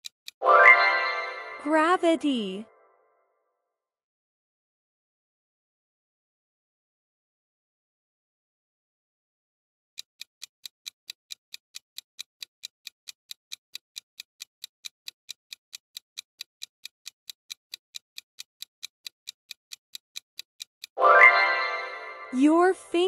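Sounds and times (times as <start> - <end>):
clock ticking: 0.0 - 2.4, 10.0 - 23.0.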